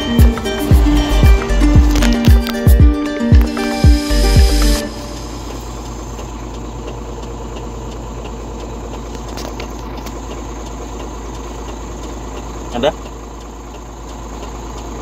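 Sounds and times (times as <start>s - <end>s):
background music: 0.0s - 6.1s
road noise: 0.0s - 15.0s
truck engine drone: 0.0s - 15.0s.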